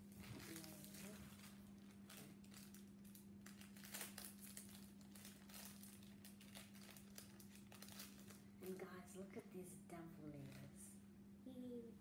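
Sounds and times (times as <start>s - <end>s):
plastic packet crinkling: 0.0s - 8.9s
steady low hum: 0.0s - 12.0s.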